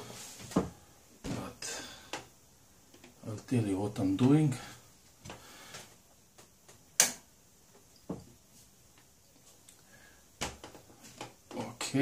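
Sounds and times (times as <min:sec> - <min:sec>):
sharp click: 0:07.0 - 0:07.2.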